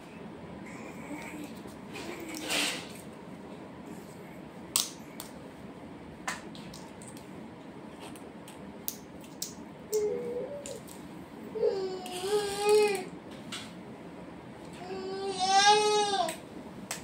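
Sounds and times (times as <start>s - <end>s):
baby babbling: 11.5s - 13.1s.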